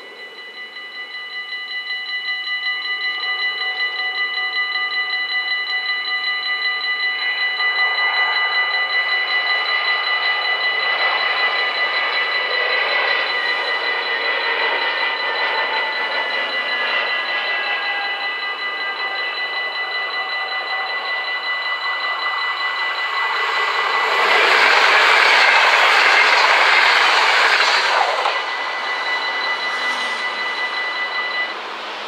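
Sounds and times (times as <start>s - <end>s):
level crossing warning bells: 0.0s - 32.0s
broad rushing noise: 7.3s - 32.0s.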